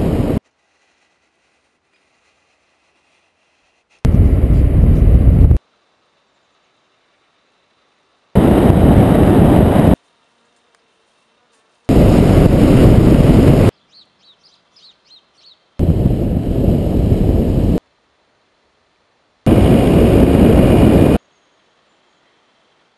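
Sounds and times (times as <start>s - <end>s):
wind rush: 0.0s - 0.4s, 4.0s - 5.6s, 8.4s - 10.0s, 11.9s - 13.7s, 15.8s - 17.8s, 19.5s - 21.2s.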